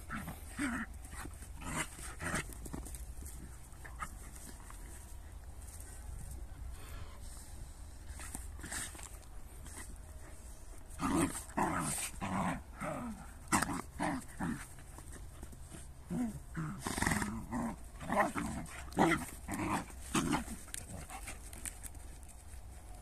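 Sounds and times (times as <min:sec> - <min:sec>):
dogs growling: 0:00.0 - 0:05.0, 0:10.9 - 0:21.9.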